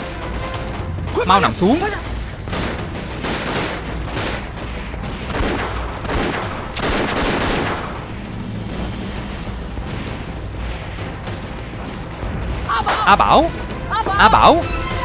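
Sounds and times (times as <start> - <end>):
rapid gunfire volleys: 1.4 - 8.3.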